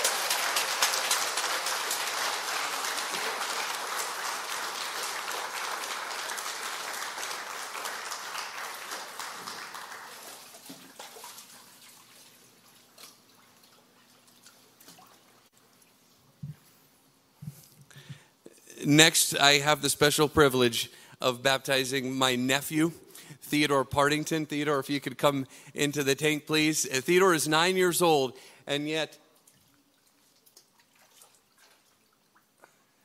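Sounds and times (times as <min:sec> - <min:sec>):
congregation applauding: 0:00.0 - 0:11.2.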